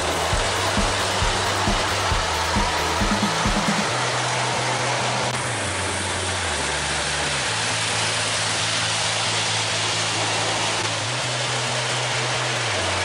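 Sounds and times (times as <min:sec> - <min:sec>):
toy train whirring on track: 0:00.0 - 0:03.0, 0:03.7 - 0:13.0
low hum: 0:00.0 - 0:08.1.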